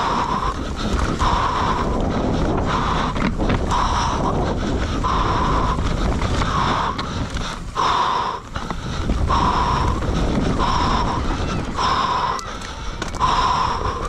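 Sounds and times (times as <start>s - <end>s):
dirt bike engine rumble: 0.0s - 14.0s
heavy rhythmic breathing: 0.0s - 14.0s
wind buffeting microphone: 0.0s - 14.0s.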